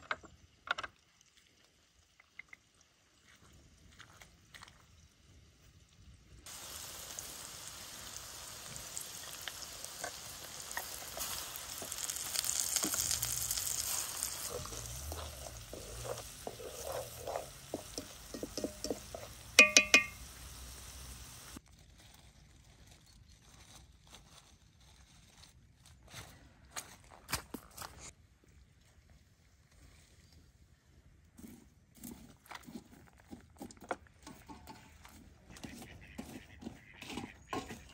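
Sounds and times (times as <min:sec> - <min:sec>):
sauce sizzling in metal pot: 0:06.4 - 0:21.6
sharp ringing knocks: 0:19.6 - 0:20.2.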